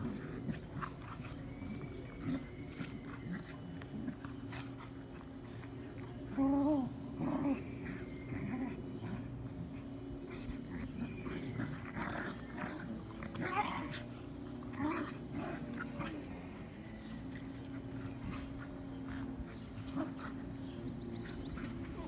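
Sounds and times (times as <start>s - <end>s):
dogs growling: 0.0s - 22.0s
scuffling on grass: 11.5s - 22.0s.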